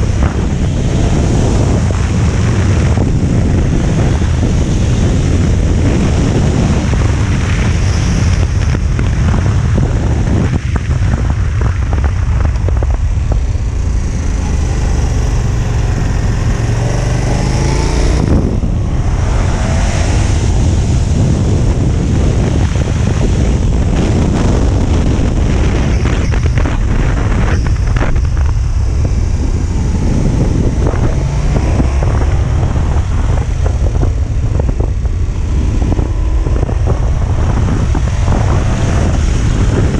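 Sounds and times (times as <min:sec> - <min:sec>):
motorcycle engine running: 0:00.0 - 0:39.9
wind noise on microphone: 0:00.0 - 0:39.9.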